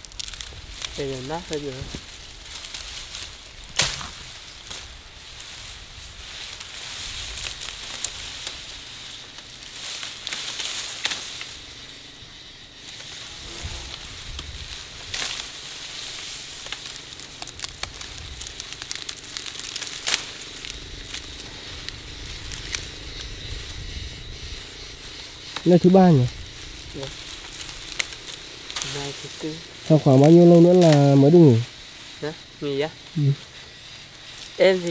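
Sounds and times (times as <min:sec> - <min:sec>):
stalks snapping: 0:00.0 - 0:05.0, 0:06.5 - 0:11.6, 0:13.8 - 0:23.4, 0:26.3 - 0:31.4
grass rustling and crackling: 0:00.0 - 0:34.9.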